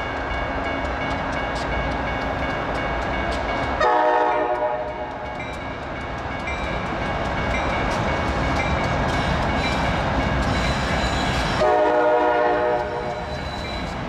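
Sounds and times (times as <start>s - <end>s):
crossing bell ringing: 0.0s - 14.0s
multi-note air horn: 11.6s - 13.0s.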